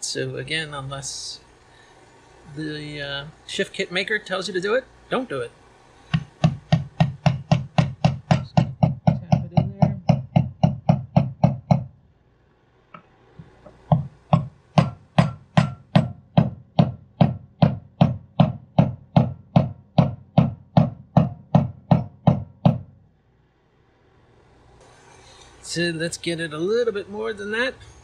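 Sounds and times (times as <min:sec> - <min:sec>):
mallet tapping a punch: 0:06.1 - 0:11.9, 0:13.8 - 0:22.9.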